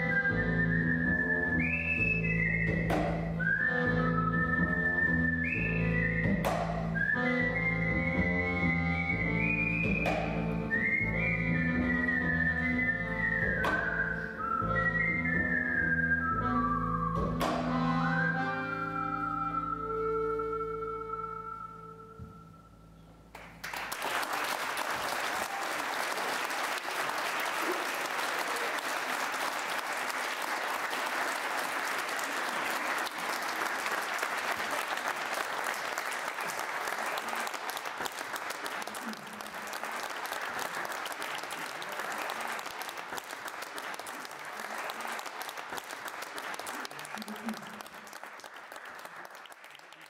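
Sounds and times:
audience applauding: 0:23.3 - 0:50.0.

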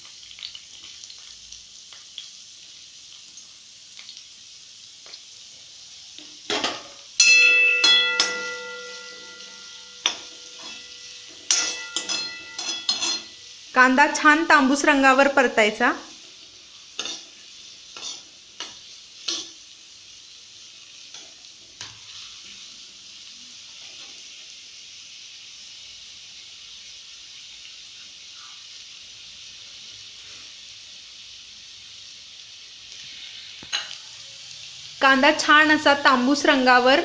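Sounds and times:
onion sizzling in hot oil: 0:00.0 - 0:37.0
steel spoon scraping pan: 0:06.5 - 0:13.4, 0:17.0 - 0:17.3, 0:17.9 - 0:19.6.

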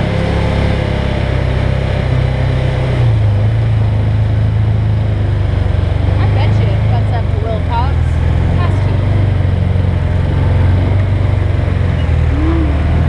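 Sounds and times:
vehicle engine running at low revs: 0:00.0 - 0:13.0.

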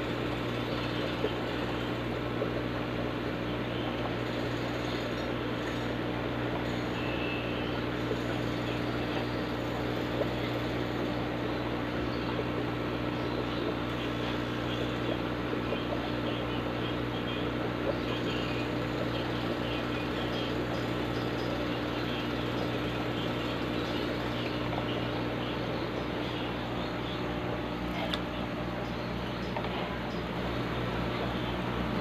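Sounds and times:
air pump humming: 0:00.0 - 0:32.0.

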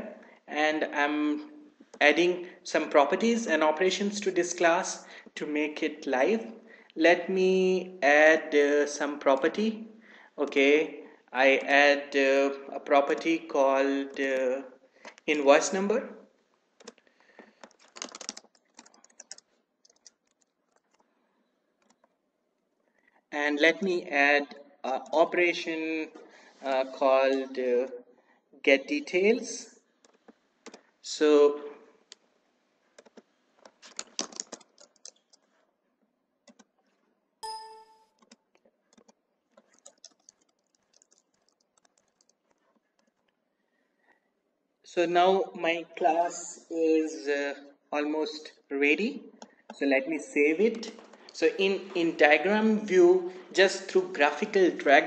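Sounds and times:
computer keyboard typing: 0:16.8 - 0:21.1, 0:21.8 - 0:22.2, 0:33.0 - 0:35.5, 0:36.4 - 0:36.7, 0:37.4 - 0:43.3
short ringing chime: 0:37.4 - 0:38.1.

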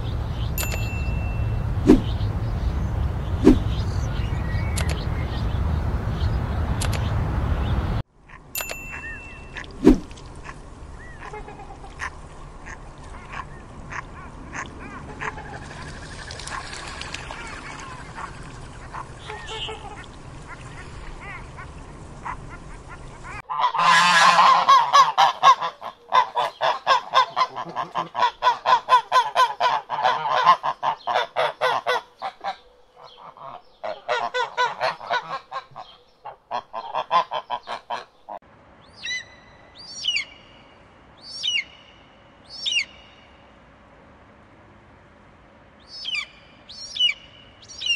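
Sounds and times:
outdoor background hiss: 0:00.0 - 0:47.9
waterfowl honking: 0:09.4 - 0:38.4.

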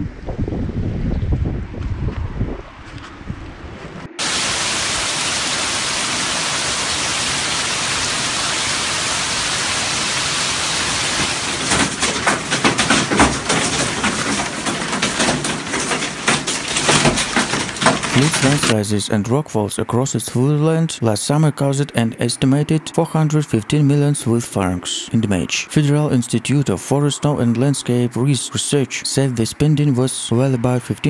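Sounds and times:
hail hissing down: 0:04.2 - 0:18.8
hailstones cracking on hard surfaces: 0:10.0 - 0:18.8.

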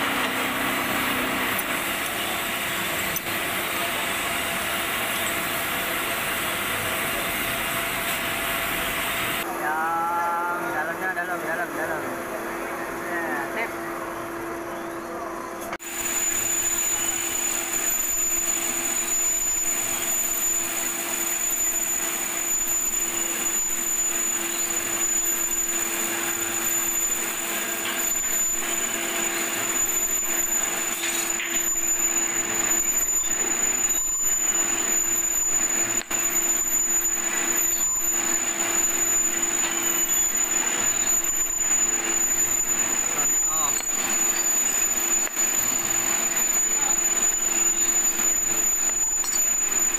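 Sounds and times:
workshop machinery running: 0:00.0 - 0:49.9.

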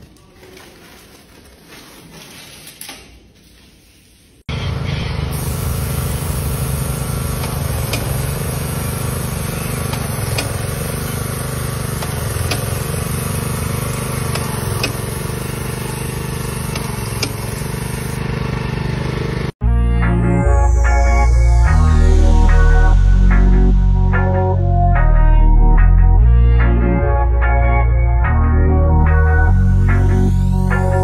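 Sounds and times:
small petrol engine running: 0:04.5 - 0:19.6
paint spray gun hissing: 0:04.9 - 0:19.6.

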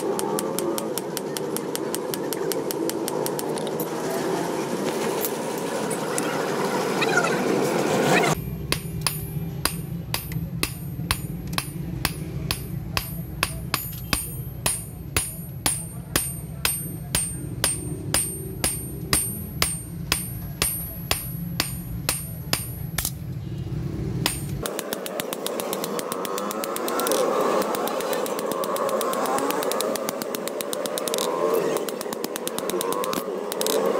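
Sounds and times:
hammer ringing on steel anvil: 0:08.4 - 0:23.2, 0:24.2 - 0:33.1.

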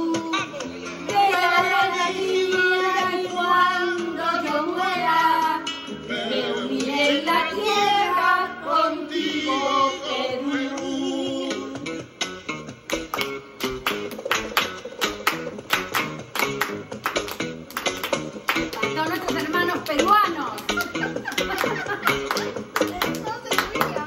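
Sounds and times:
women singing together: 0:00.0 - 0:11.8
instrumental accompaniment: 0:11.4 - 0:24.0.

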